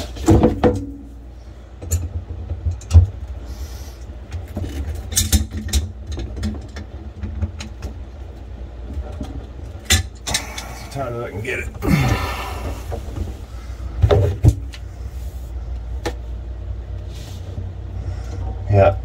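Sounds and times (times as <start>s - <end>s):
steady low rumble: 5.8s - 19.0s.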